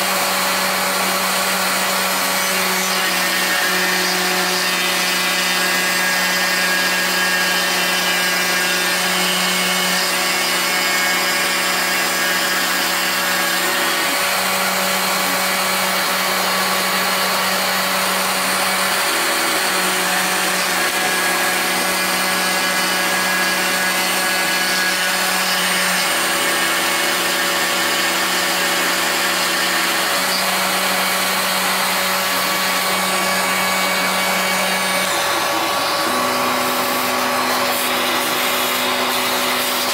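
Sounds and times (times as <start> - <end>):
router spindle cutting wood: 0.0 - 39.9.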